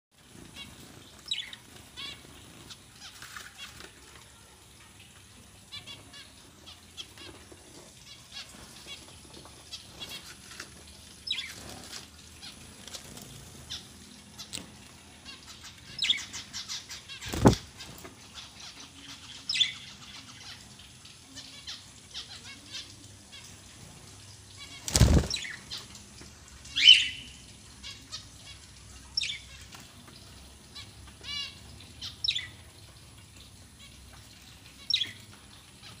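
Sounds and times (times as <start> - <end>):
wings fluttering: 0.4 - 4.1, 8.4 - 13.8, 17.2 - 18.1, 24.7 - 25.7
budgerigars chirping: 26.8 - 27.3.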